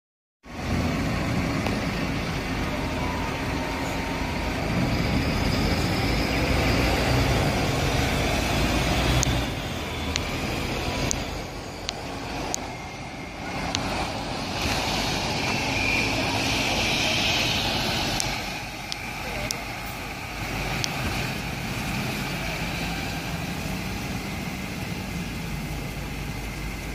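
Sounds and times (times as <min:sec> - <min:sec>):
bus diesel engine humming: 0:00.4 - 0:26.9
engine and tyre noise rush: 0:00.4 - 0:26.9
sharp ticks: 0:09.0 - 0:10.4, 0:11.0 - 0:12.7, 0:20.7 - 0:21.0.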